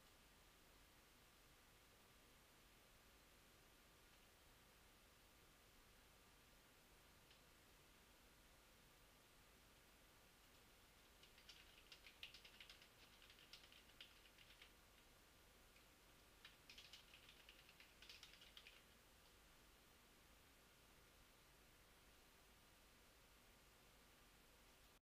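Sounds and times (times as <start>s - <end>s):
computer keyboard typing: 11.0s - 15.1s, 15.8s - 18.9s.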